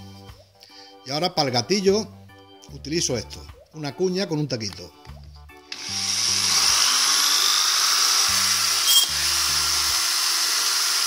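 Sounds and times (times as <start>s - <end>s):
background music: 0.0s - 11.0s
electric drill drilling wood: 5.7s - 11.0s.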